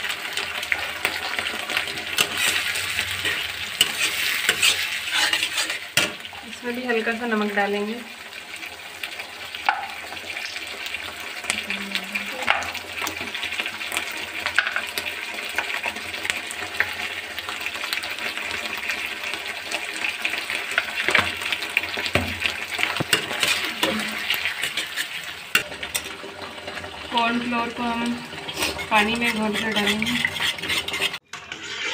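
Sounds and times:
vegetables sizzling in sauce: 0.0s - 31.9s
spatula scraping and tapping pan: 0.7s - 6.4s, 9.6s - 10.6s, 12.4s - 15.9s, 20.7s - 26.8s, 28.0s - 31.9s.

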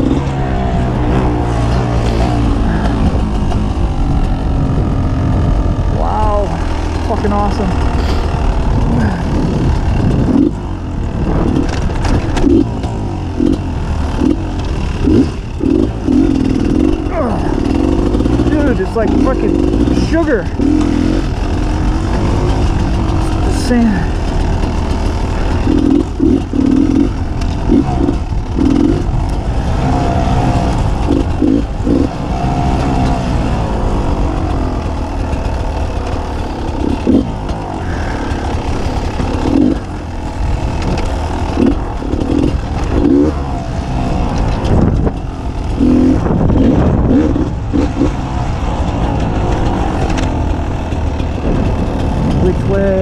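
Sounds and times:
two-stroke motorcycle revving: 0.0s - 53.0s.

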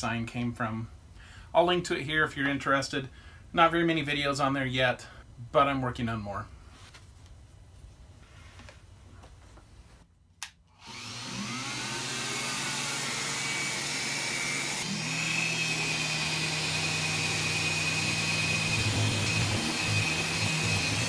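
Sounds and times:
orbital sander whining: 10.8s - 21.0s.

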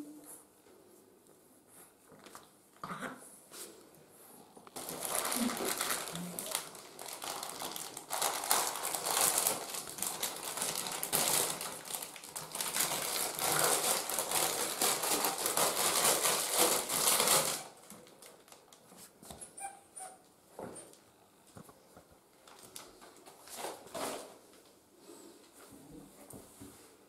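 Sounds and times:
plastic packaging crinkling: 4.8s - 19.2s, 22.4s - 24.2s.

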